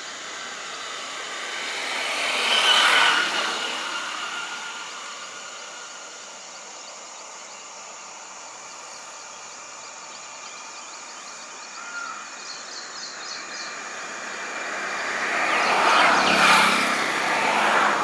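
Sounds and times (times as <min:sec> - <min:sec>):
vehicle passing: 0:00.1 - 0:06.4, 0:13.1 - 0:18.0.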